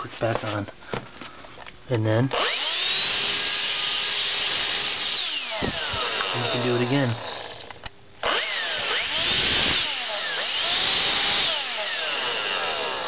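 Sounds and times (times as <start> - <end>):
hand vacuum motor whine: 2.4 - 13.0.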